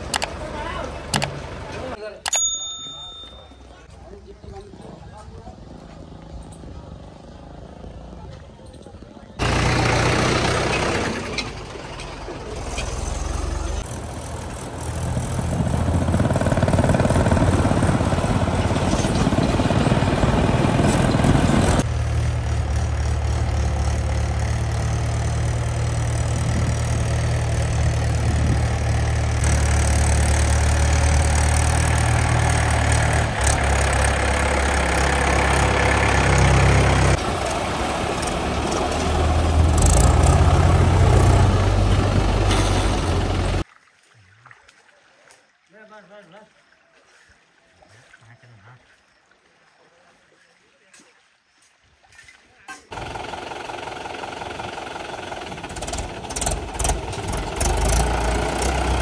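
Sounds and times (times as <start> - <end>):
tractor engine running: 0.0 - 3.9, 5.4 - 43.6, 52.9 - 59.0.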